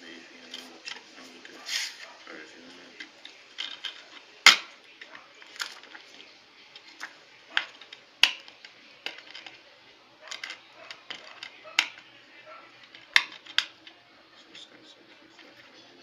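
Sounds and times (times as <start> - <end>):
plastic dvd case clicking: 3.0 - 9.6, 12.8 - 14.0.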